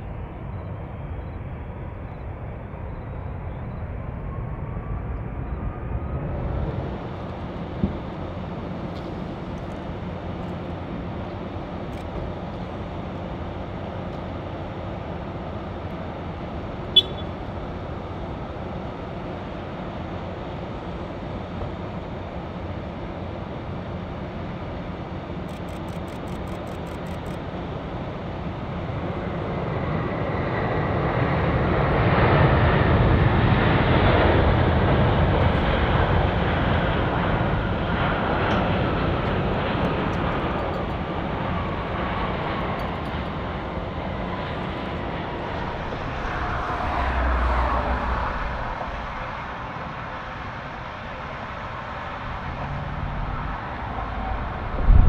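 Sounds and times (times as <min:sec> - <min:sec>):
jet engine whine falling: 0:00.0 - 0:55.0
jet engines rushing: 0:00.0 - 0:55.0.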